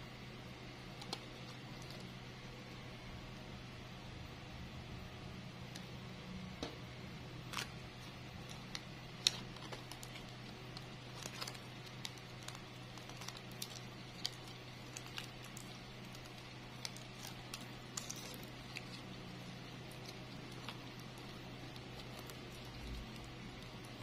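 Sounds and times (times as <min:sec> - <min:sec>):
low steady hum: 0:00.0 - 0:24.0
plastic crinkling and clicks: 0:08.4 - 0:24.0.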